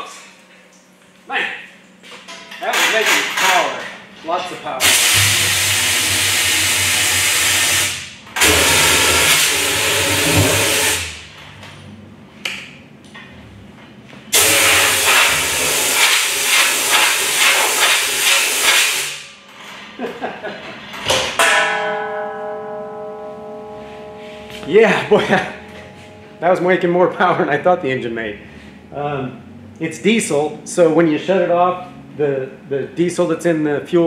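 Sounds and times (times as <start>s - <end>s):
pulsejet running loudly: 4.8s - 11.3s, 14.3s - 19.2s
steady musical tones: 21.5s - 29.6s.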